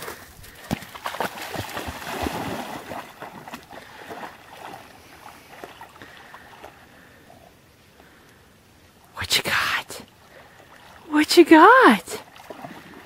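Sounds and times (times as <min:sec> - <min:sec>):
dog splashing in water: 0:00.0 - 0:06.8, 0:12.2 - 0:13.0.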